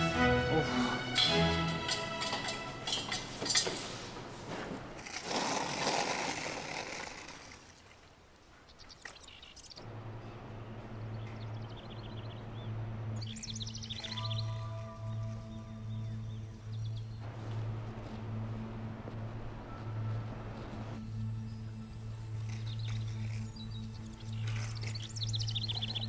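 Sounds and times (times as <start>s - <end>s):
held musical notes: 0.0s - 3.8s
small birds chirping: 7.4s - 9.8s, 10.8s - 17.3s, 20.5s - 26.0s
steady low hum: 9.8s - 26.0s.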